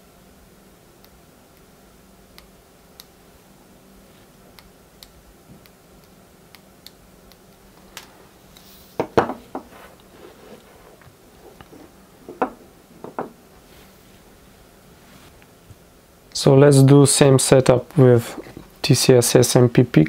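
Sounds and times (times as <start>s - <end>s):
small switch clicks: 2.3s - 3.2s, 4.6s - 8.1s
metal parts knocking on wooden bench: 9.0s - 9.7s, 12.3s - 13.4s.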